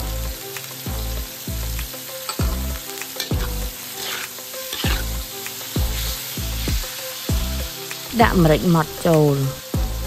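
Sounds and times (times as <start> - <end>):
background music with bass beat: 0.0 - 10.0
meat sizzling in a wok: 0.0 - 10.0
metal spatula scraping pan: 3.2 - 7.3.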